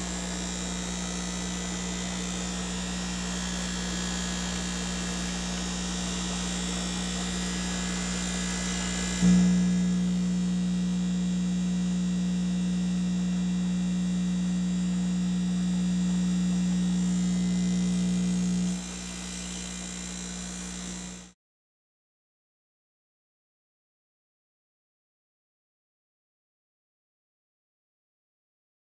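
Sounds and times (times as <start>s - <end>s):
electric air pump humming: 0.0s - 21.3s.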